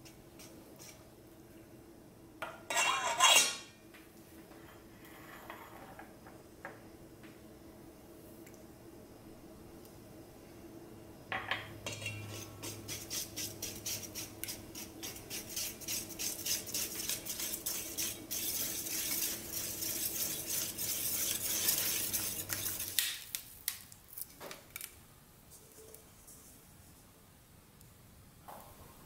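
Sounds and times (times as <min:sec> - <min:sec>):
whisk clinking against bowl: 0:11.8 - 0:23.0.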